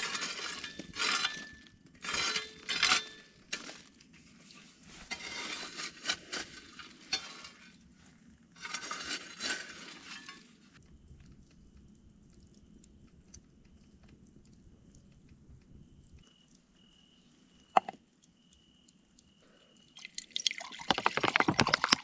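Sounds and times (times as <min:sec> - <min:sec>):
spade scraping charcoal embers: 0:00.0 - 0:07.8, 0:08.6 - 0:10.6.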